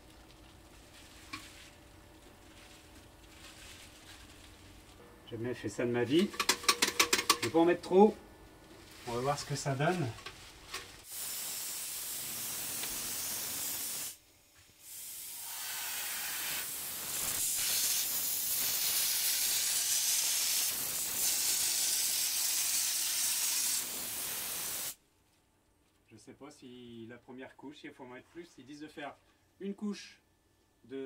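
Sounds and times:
texture spray gun hissing: 11.0 - 25.0.

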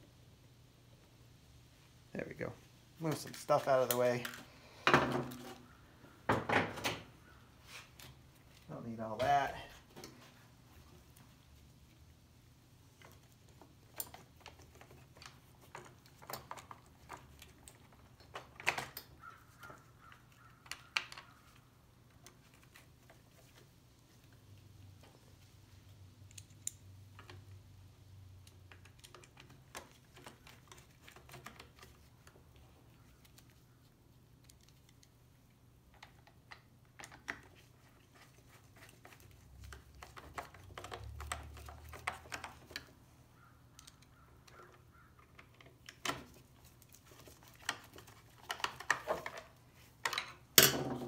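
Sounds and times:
small clicks and taps: 13.0 - 25.2, 35.9 - 43.1.

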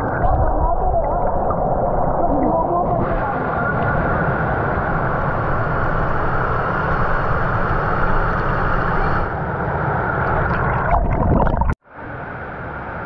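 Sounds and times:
water sloshing over microphone: 0.0 - 6.0, 10.2 - 11.8.

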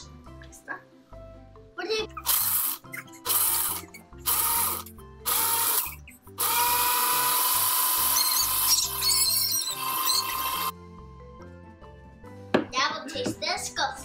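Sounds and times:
blender running: 2.3 - 5.8, 6.4 - 8.9, 9.8 - 10.7.

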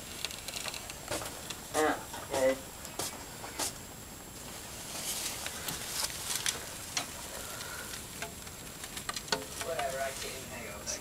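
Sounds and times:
mice scrabbling through paper: 0.0 - 3.8, 4.4 - 11.0.

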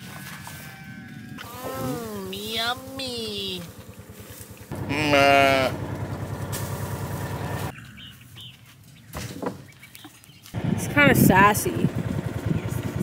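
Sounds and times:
low pulsing drone: 0.0 - 7.7
sheep bleating: 4.7 - 5.8.

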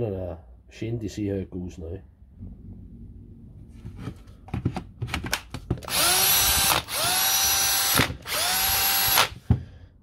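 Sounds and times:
cordless drill motor whine: 5.8 - 9.4.

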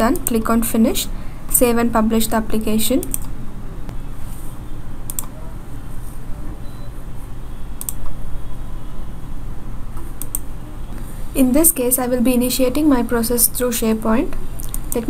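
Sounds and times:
steady low hum: 0.0 - 15.0
computer mouse clicks: 3.0 - 3.3, 5.1 - 5.3, 7.8 - 8.2, 10.0 - 10.5, 14.6 - 15.0.

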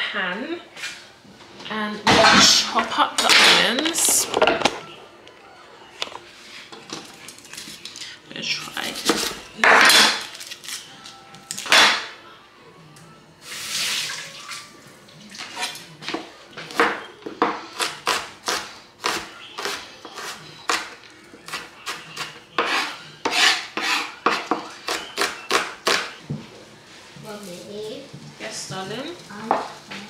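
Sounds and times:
knife chopping on cutting board: 21.5 - 26.1.

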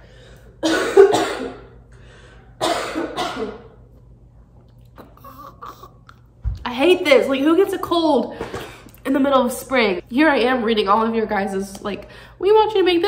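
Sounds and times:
woman coughing: 0.6 - 1.8, 2.6 - 3.8.

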